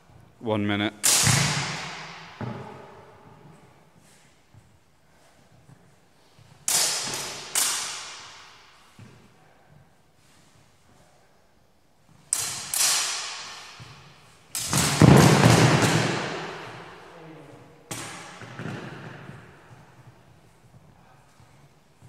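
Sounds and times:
steel swords clashing: 12.3s - 15.0s.

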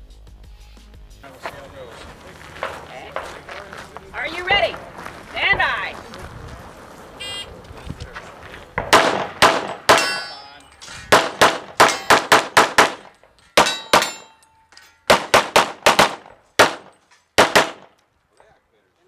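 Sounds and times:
rapid gunshots: 8.8s - 10.1s, 11.1s - 14.2s, 15.1s - 17.9s
metallic ring: 9.7s - 11.1s, 13.3s - 15.1s.

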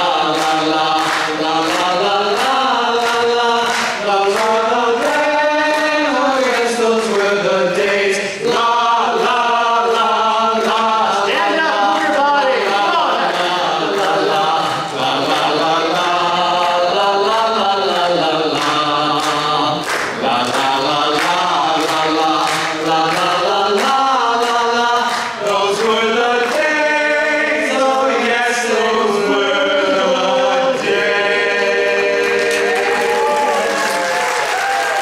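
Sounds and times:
applause: 0.0s - 7.3s, 16.6s - 25.5s, 32.3s - 35.0s
men singing a cappella harmony: 0.0s - 33.9s.

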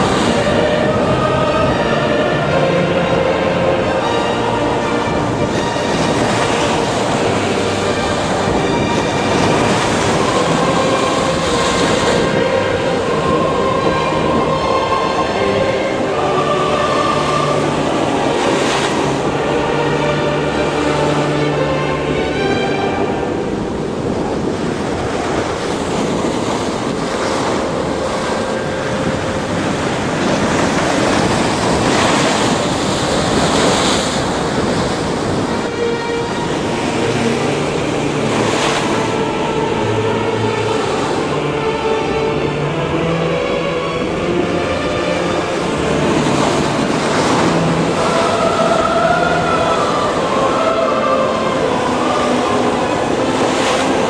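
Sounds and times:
faint music: 0.0s - 54.0s
rough sea: 0.0s - 54.0s
storm wind roaring: 0.0s - 54.0s
waves breaking and rushing: 0.0s - 54.0s.

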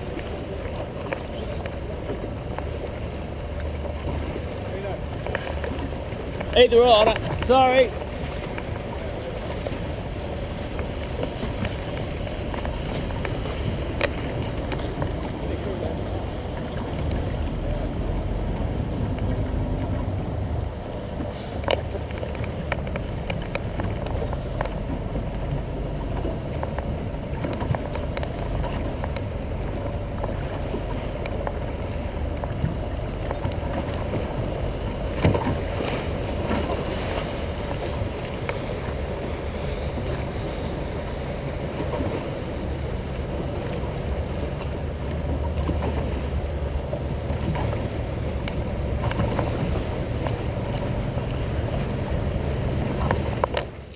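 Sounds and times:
boat motor drone: 0.0s - 53.9s
water rushing and splashing: 0.0s - 53.9s.

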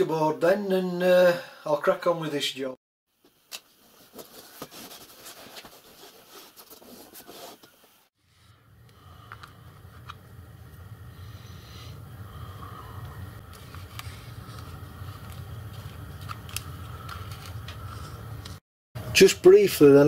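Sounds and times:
steady low hum: 8.3s - 19.2s.

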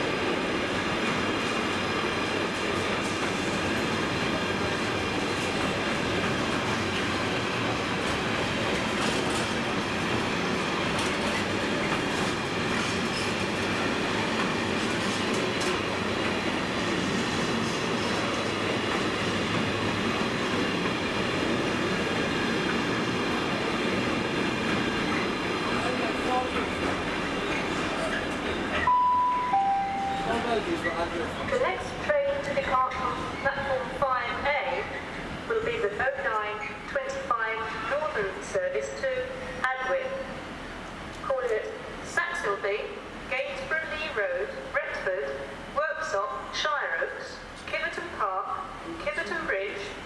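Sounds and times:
train wheels rolling on rails: 0.0s - 28.9s.

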